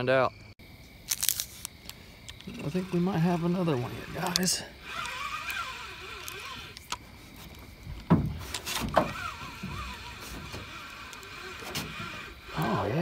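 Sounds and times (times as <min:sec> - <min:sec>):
sharp knocks in a boat: 0:08.1 - 0:09.1.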